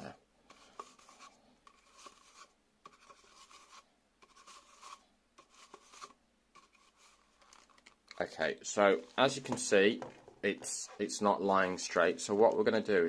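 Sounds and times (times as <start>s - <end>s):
hand rubbing camcorder body: 0.5s - 8.1s.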